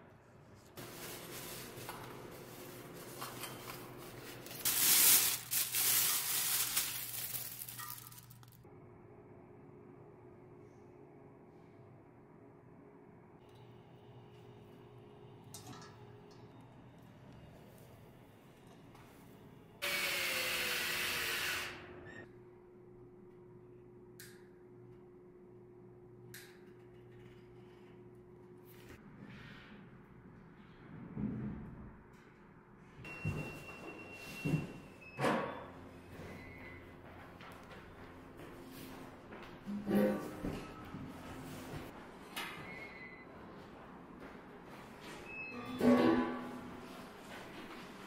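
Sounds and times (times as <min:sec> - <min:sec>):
packaging rustling and crinkling: 0:00.8 - 0:08.6
power tool whirring: 0:19.8 - 0:21.9.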